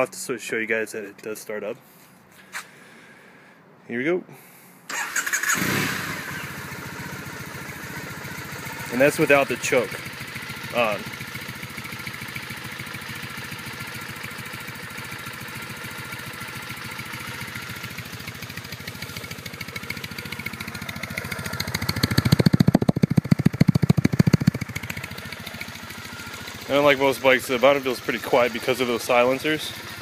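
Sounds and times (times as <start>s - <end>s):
motorcycle engine idling: 4.9s - 30.0s
deep exhaust pulses: 21.4s - 25.3s.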